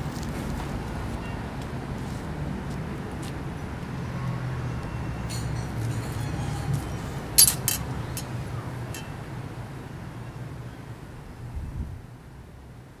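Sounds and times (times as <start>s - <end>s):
street traffic rumble: 0.0s - 13.0s
sharp clinks: 7.4s - 8.3s.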